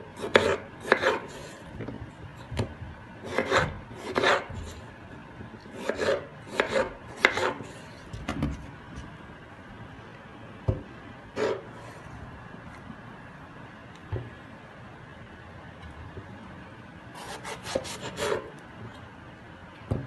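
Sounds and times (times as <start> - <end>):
knife slicing potato on board: 0.2 - 1.6, 3.2 - 4.8, 5.7 - 8.3, 11.4 - 11.6, 17.2 - 18.5.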